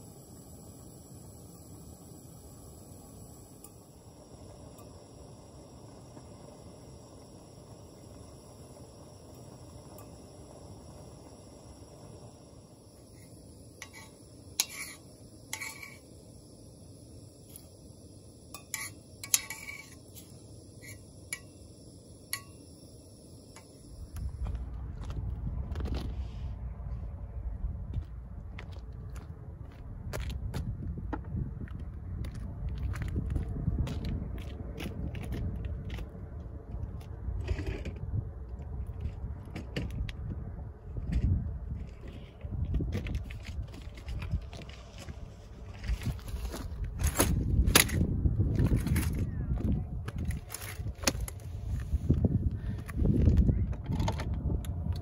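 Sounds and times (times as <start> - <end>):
steady background hiss: 0.0 - 24.5
metal spoon stirring soup in pot: 13.8 - 16.1, 18.5 - 21.6
spoon clinking against pot: 18.5 - 20.0
wind rumbling on microphone: 23.9 - 55.0.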